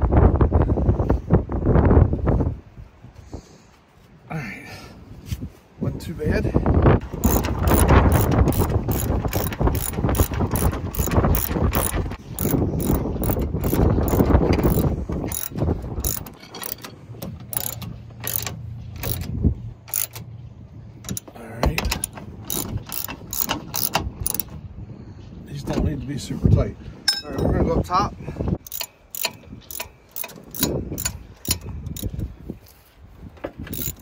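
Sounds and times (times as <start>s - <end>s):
socket ratchet clicking: 7.2s - 20.3s, 21.9s - 24.5s, 28.6s - 32.1s, 33.7s - 34.0s.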